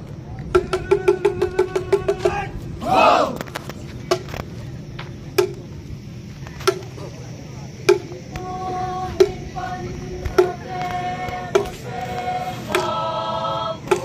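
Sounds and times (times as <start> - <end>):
slow percussion beat: 0.5 - 2.4, 5.3 - 5.8, 7.8 - 13.1, 13.8 - 14.0
voices singing long notes: 0.5 - 3.4, 8.3 - 14.0.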